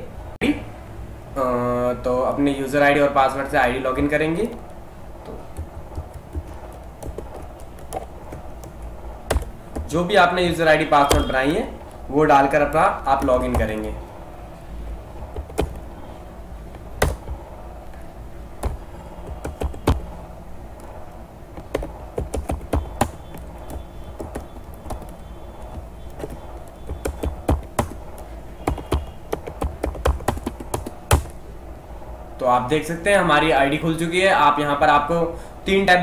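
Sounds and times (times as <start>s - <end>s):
steady low hum: 0.0s - 35.7s
keyboard key clicks: 21.6s - 31.4s.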